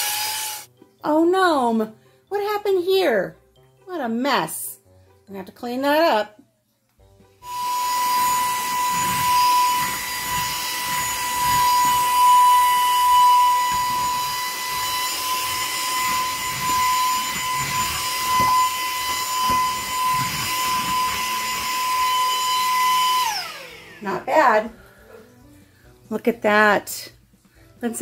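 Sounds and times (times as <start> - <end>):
handheld vacuum whining: 0.0 - 0.7, 7.4 - 24.8.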